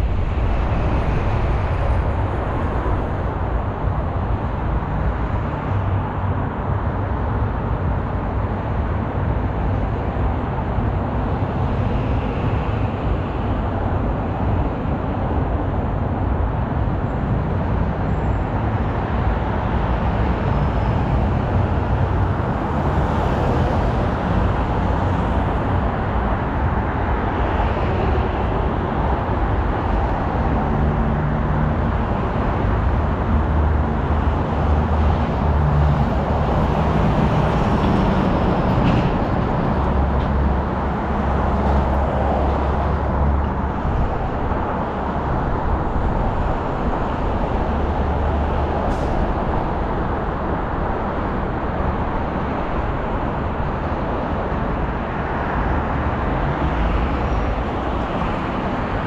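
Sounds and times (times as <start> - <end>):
low engine hum: 0.0 - 59.0
road and tyre noise: 0.0 - 59.0.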